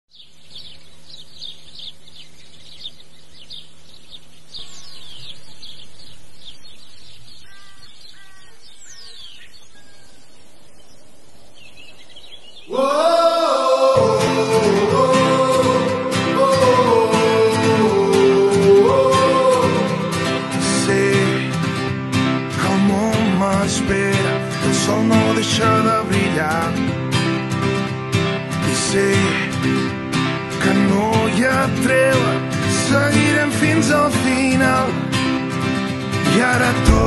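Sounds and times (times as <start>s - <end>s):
small birds chirping: 0.1s - 12.9s
music: 12.9s - 37.0s.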